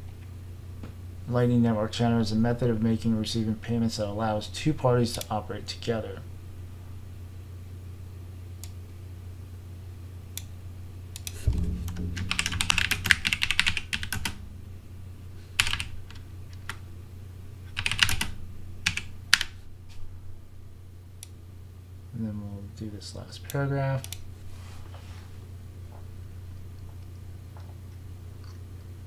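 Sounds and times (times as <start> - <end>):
steady low hum: 0.0 - 29.0
typing on a keyboard: 12.3 - 14.4, 15.6 - 15.9, 17.7 - 19.5.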